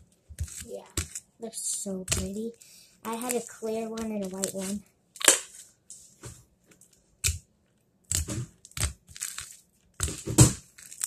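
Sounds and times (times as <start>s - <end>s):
slime squished by hand: 7.2s - 11.0s.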